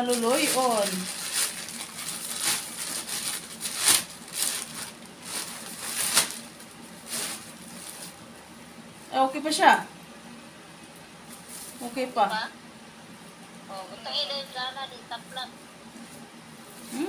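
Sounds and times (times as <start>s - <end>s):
plastic bags crinkling: 0.0s - 8.2s.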